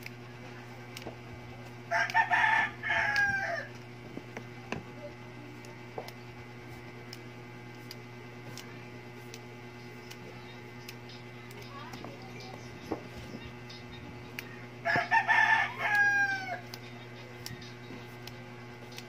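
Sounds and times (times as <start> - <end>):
steady low hum: 0.0 - 19.0
rooster crowing: 1.9 - 3.7, 14.8 - 16.7.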